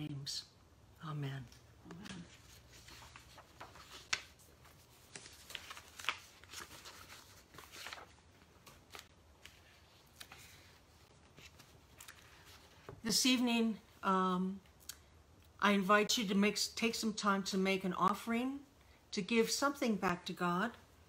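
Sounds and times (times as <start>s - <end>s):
paper pages rustling: 1.9s - 13.0s.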